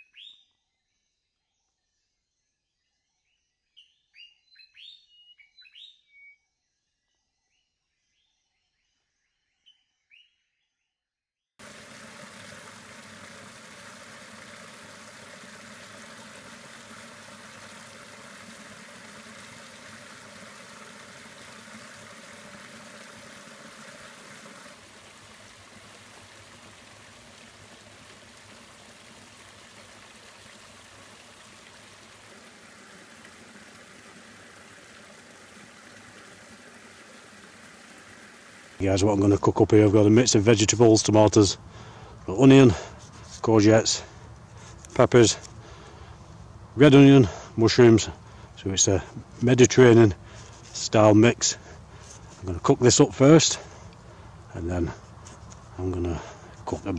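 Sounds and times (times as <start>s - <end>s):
faint bird chirps: 0.0s - 10.9s
stream splashing over rocks: 11.6s - 46.1s, 46.8s - 56.9s.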